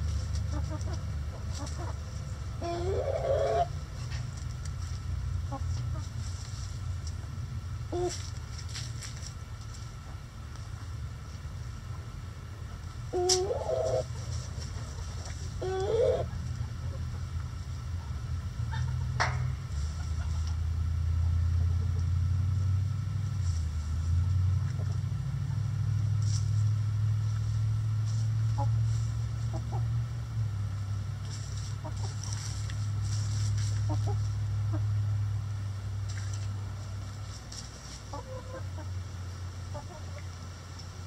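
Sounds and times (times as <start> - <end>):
hens scratching in litter: 0.0 - 7.2, 8.0 - 11.6, 13.3 - 16.7, 19.7 - 20.6, 23.2 - 25.0, 26.1 - 29.6, 31.1 - 34.6, 36.0 - 38.6
low steady hum: 0.0 - 41.0
hens clucking softly: 0.3 - 4.4, 12.8 - 20.6, 28.5 - 29.9, 31.2 - 32.8, 33.6 - 35.0, 36.2 - 40.9.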